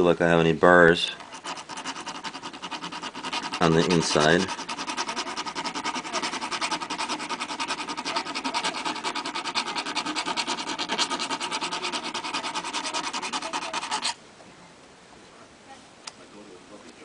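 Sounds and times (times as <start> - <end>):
tool scraping metal edge: 1.0 - 14.2.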